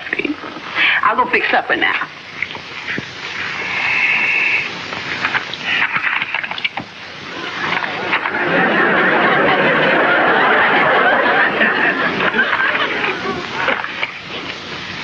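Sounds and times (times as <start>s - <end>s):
audience laughter: 7.3s - 14.2s.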